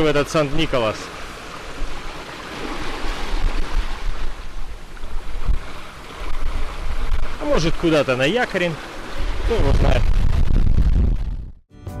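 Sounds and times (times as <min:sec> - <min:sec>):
sea water rushing and splashing: 0:00.0 - 0:10.6
wind buffeting microphone: 0:01.5 - 0:07.8, 0:08.8 - 0:11.6.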